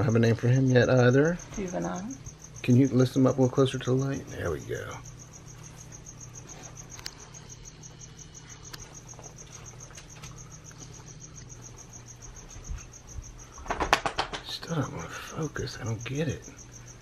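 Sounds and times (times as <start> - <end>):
cricket chirping: 0.0 - 17.0
low steady hum: 0.0 - 17.0.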